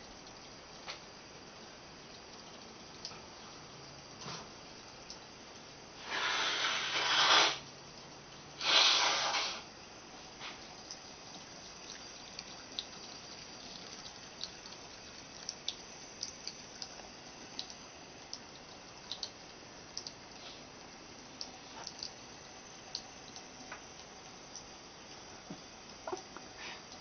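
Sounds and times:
cat drinking drips: 0.0s - 5.9s, 9.7s - 27.0s
faucet water running into sink: 10.4s - 20.2s.

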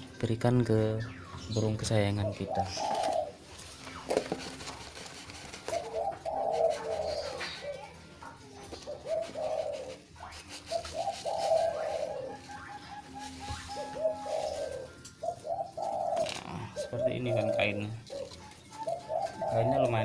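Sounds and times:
doves cooing: 1.1s - 20.0s.

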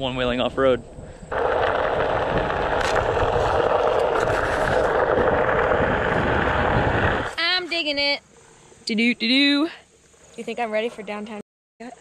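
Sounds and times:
tyre rolling over gravel: 1.3s - 7.4s.

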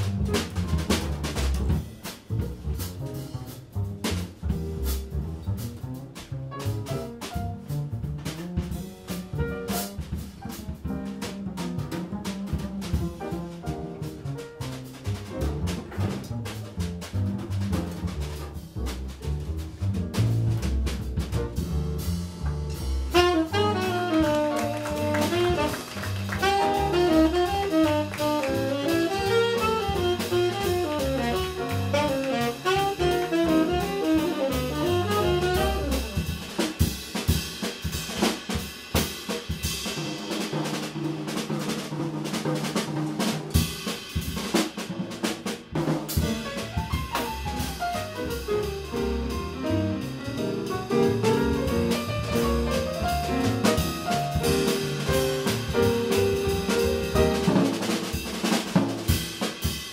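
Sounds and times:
drum kit: 0.0s - 59.9s
piano: 0.0s - 59.9s
upright double bass: 0.0s - 59.9s
saxophone: 23.1s - 36.2s.

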